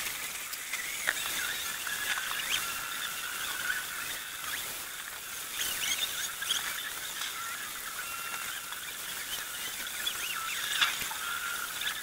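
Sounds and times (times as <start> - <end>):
rain hiss: 0.0 - 12.0
small birds chirping: 0.8 - 12.0.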